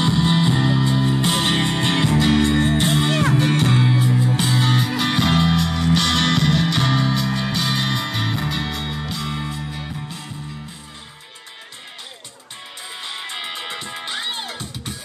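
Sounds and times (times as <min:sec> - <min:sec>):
held bass notes: 0:00.0 - 0:11.2
guitar-led music: 0:00.0 - 0:15.0.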